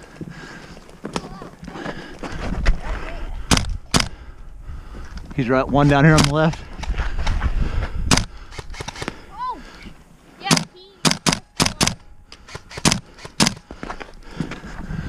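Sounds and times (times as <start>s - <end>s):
airsoft gun shots: 3.5s - 4.1s, 10.5s - 13.6s.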